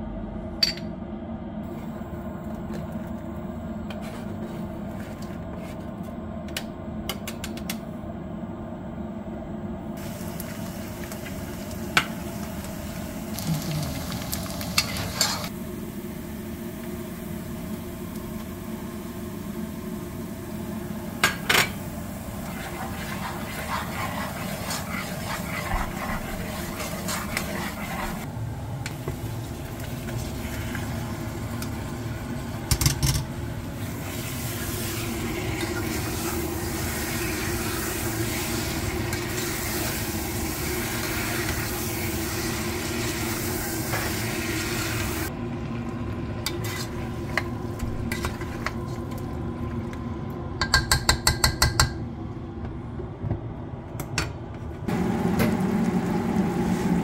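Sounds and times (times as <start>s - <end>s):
onions sizzling in hot oil: 10.0s - 32.6s, 33.7s - 45.3s
spoon knocking against pot: 50.6s - 52.0s.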